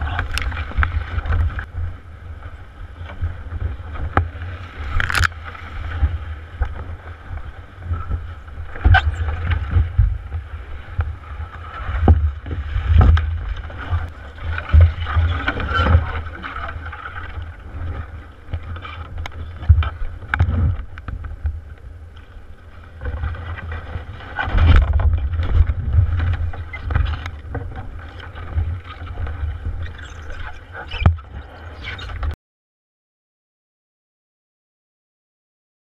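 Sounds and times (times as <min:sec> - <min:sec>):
low rumble inside canoe hull: 0:00.0 - 0:32.4
knocks and thumps of hull: 0:03.0 - 0:21.6, 0:23.0 - 0:31.5.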